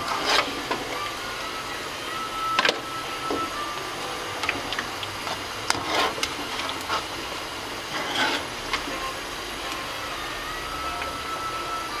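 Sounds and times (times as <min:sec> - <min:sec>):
strainer scraping wok: 0:00.0 - 0:01.8, 0:02.4 - 0:09.3
tofu deep-frying in oil: 0:00.0 - 0:12.0.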